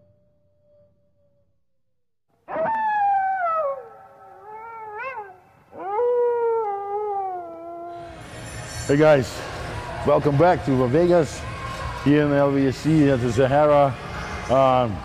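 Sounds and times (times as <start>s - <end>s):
animal howling: 2.5s - 8.1s.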